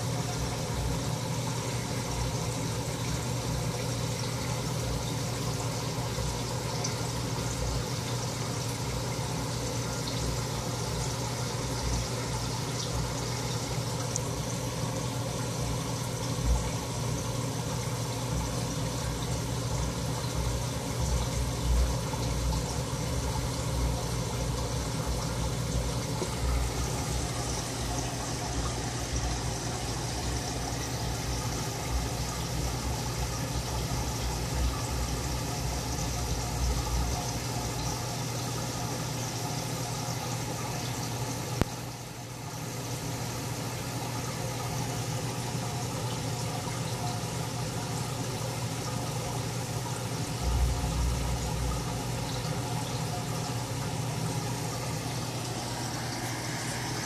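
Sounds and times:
steady hum and hiss: 0:00.0 - 0:57.0
low rumble: 0:50.4 - 0:52.1.

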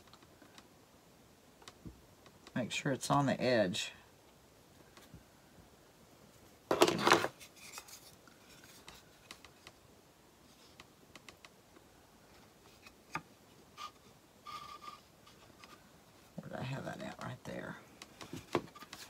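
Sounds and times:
scrape and rustle: 0:06.3 - 0:09.6, 0:10.4 - 0:10.8, 0:12.3 - 0:17.0.

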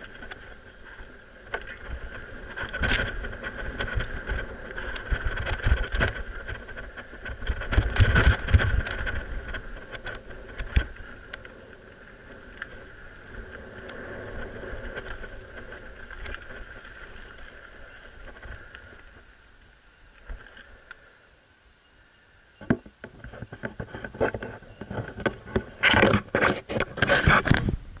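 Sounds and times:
mountain bike rolling on dirt: 0:00.0 - 0:20.9
sharp clicks and knocks: 0:01.5 - 0:11.5, 0:22.6 - 0:27.8.

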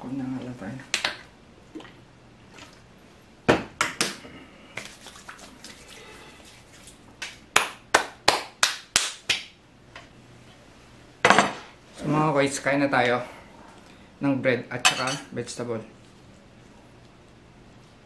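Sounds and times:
sharp hand claps: 0:07.2 - 0:09.6.

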